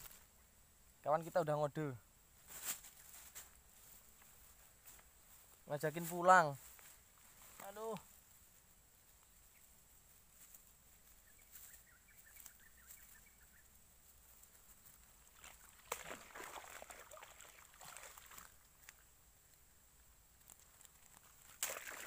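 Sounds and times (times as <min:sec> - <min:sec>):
bird twittering: 0:11.2 - 0:13.7
water sloshing: 0:15.2 - 0:19.0, 0:21.5 - 0:22.0.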